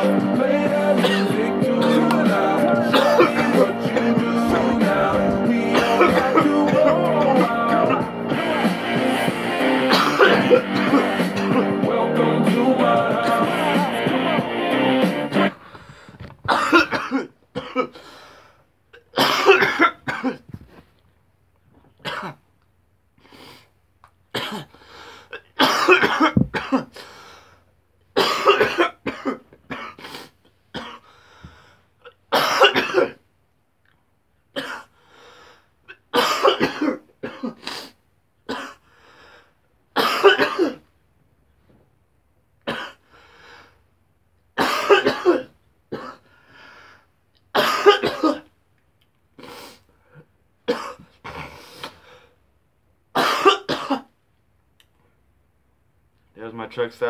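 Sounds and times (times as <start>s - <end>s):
man coughing hard: 1.0s - 2.2s, 2.8s - 4.8s, 5.4s - 7.2s, 9.9s - 11.8s, 16.5s - 18.0s, 19.0s - 20.5s, 22.0s - 22.4s, 24.4s - 24.7s, 25.4s - 27.0s, 28.2s - 30.0s, 30.8s - 31.0s, 32.3s - 33.2s, 34.6s - 34.9s, 36.0s - 37.7s, 38.5s - 38.8s, 40.0s - 40.8s, 42.7s - 43.0s, 44.6s - 46.2s, 47.6s - 48.5s, 50.7s - 51.6s, 53.2s - 54.1s.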